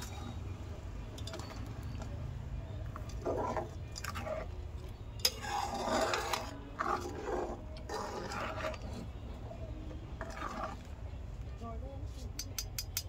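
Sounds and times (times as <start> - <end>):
metal ladle scraping a pan: 2.9 - 4.6, 5.2 - 11.0.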